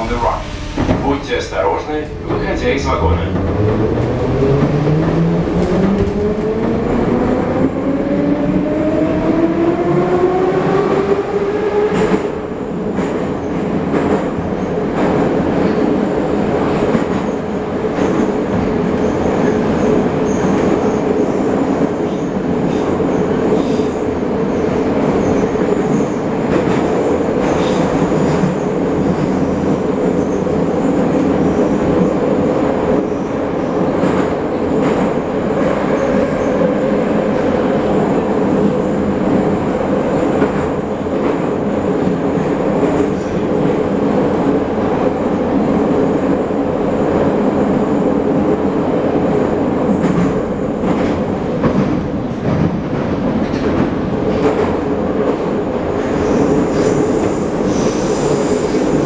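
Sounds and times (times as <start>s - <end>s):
metro car rumble: 0.0s - 59.0s.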